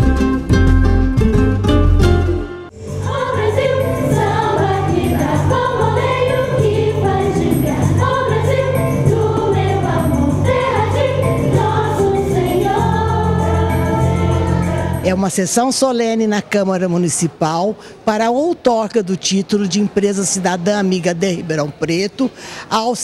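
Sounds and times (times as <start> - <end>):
steady bass line: 0.0 - 15.1
music with sung vocals: 2.7 - 15.2.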